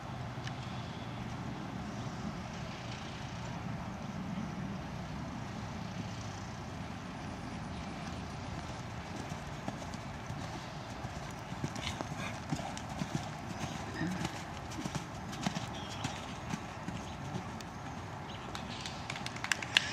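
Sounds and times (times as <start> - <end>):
horse hoofbeats on sand: 8.0 - 19.7.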